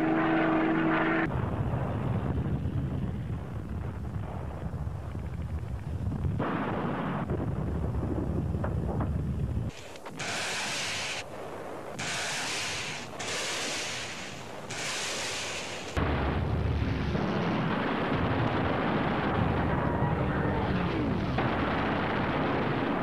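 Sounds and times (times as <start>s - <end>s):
artillery fire: 0.0s - 23.0s
explosions: 0.0s - 23.0s
heavy rumble: 0.0s - 23.0s
rushing hiss bursts: 9.7s - 11.3s, 11.9s - 16.0s.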